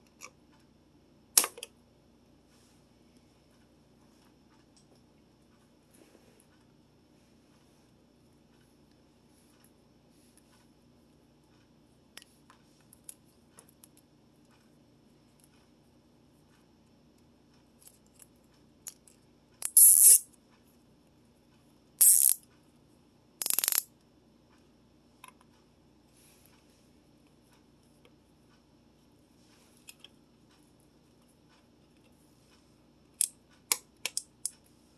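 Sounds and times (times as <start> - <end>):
loud ratcheting rasp: 23.4 - 23.8.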